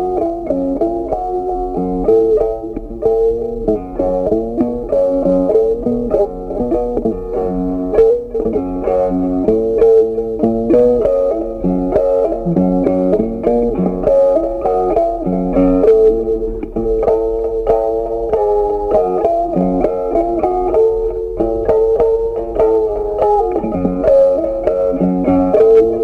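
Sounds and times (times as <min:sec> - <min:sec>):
plucked guitar: 0:00.0 - 0:26.0
low bass line: 0:10.9 - 0:14.0.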